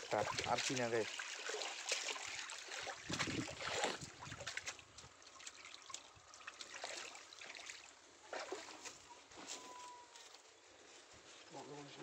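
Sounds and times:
water dripping: 0.0 - 8.7
water splashing off net: 0.0 - 9.0.

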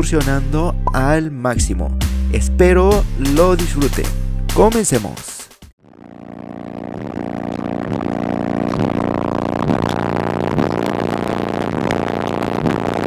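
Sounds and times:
pulsing low bass drone: 5.9 - 13.0.

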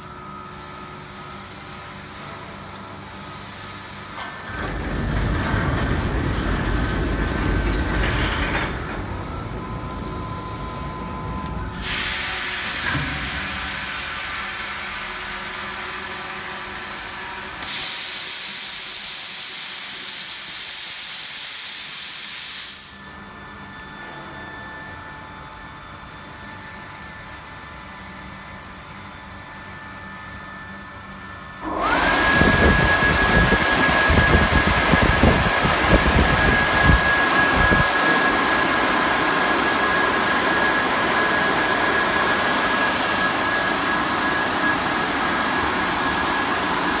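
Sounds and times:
machine hum: 4.2 - 14.3
rushing air hiss: 11.7 - 14.8, 17.6 - 23.0
motor whine: 31.6 - 47.0.

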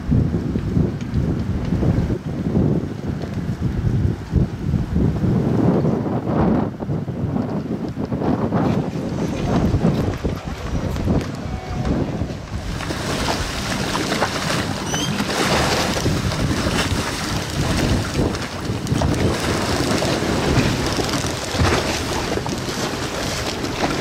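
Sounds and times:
wind buffeting microphone: 0.0 - 24.0
water slapping against hulls: 7.4 - 24.0.

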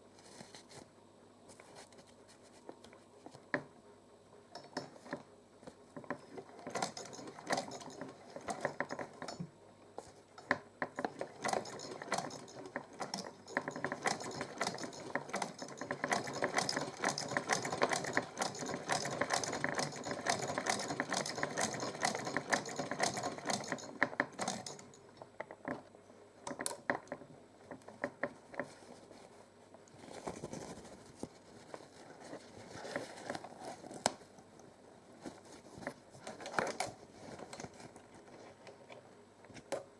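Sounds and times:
sewing machine clicking: 6.0 - 9.5, 10.4 - 25.0.

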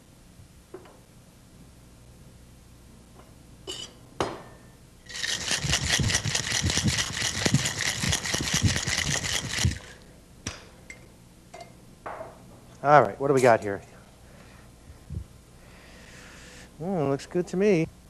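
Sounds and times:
ice rattling in cocktail shaker: 5.1 - 10.0.

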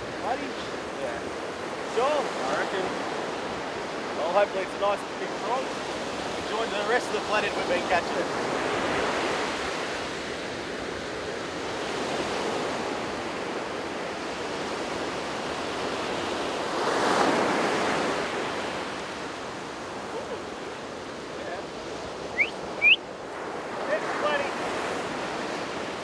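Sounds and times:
ocean surf breaking on beach: 0.0 - 26.0
wave crashing: 16.6 - 26.0.

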